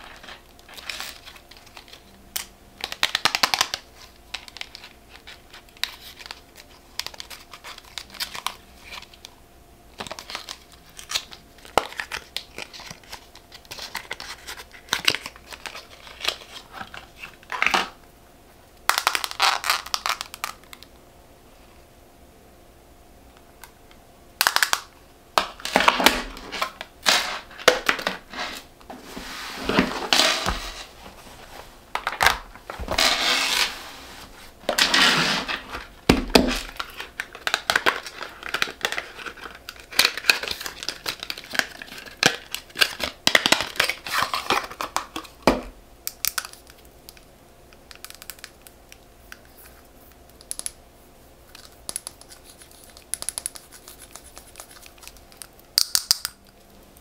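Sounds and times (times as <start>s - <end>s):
packaging rustling and crinkling: 0.0s - 2.1s, 10.0s - 18.0s, 25.5s - 45.6s.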